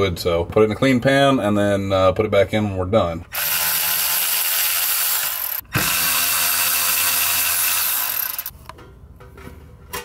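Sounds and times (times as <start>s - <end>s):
electric ratchet running: 3.3s - 8.5s.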